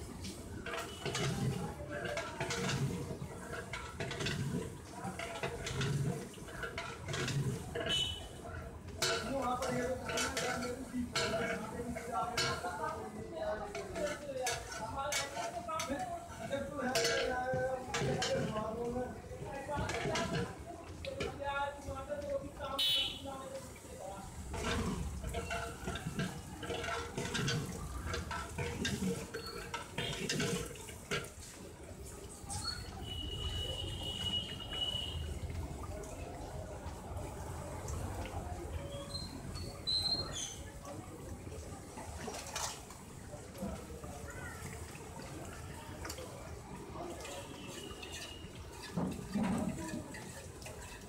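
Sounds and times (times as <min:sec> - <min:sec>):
liquid sloshing in metal pot: 0:00.0 - 0:51.0
metal ladle stirring rice: 0:00.2 - 0:22.2, 0:22.8 - 0:35.4.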